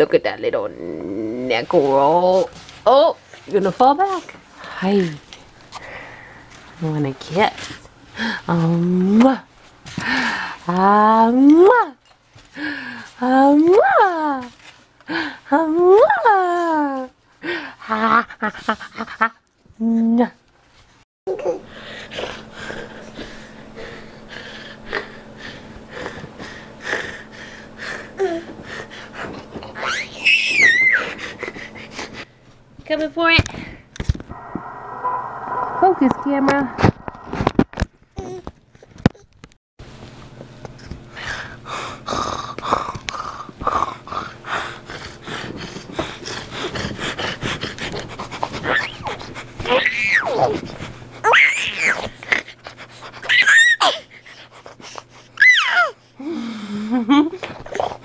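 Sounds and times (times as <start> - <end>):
baby high squeal: 29.8 - 31.1.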